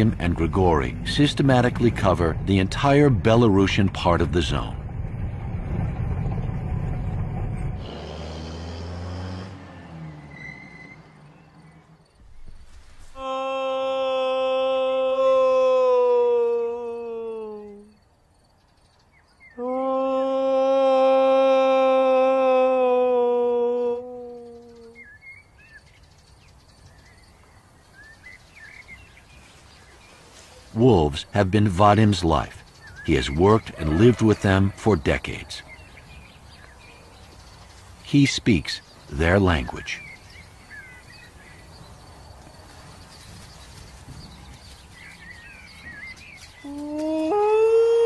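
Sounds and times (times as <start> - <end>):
vehicle rumbling on rough track: 0.0 - 13.1, 24.7 - 47.4
man imitating wolf howl: 13.2 - 18.0, 19.6 - 25.0, 46.6 - 48.0
faint bird chirps: 17.1 - 19.7, 24.0 - 30.8, 32.0 - 47.6.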